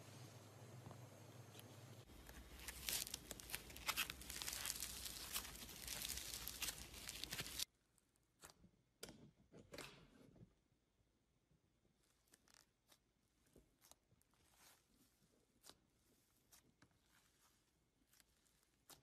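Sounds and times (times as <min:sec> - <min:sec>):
floam crackling and popping: 0:02.4 - 0:07.7.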